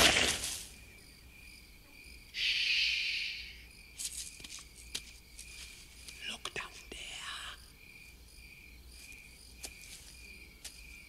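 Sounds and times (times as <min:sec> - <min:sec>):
crickets chirping: 0:00.0 - 0:11.0
hiss: 0:02.4 - 0:03.6.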